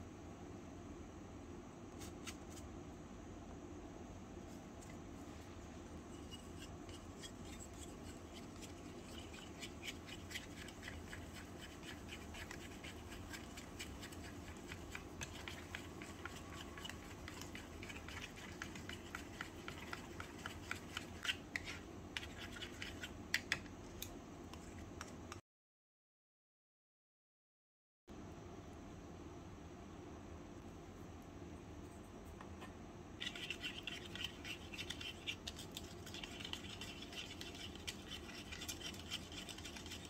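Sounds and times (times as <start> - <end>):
spatula scraping a bowl: 6.0 - 23.5, 32.6 - 40.0.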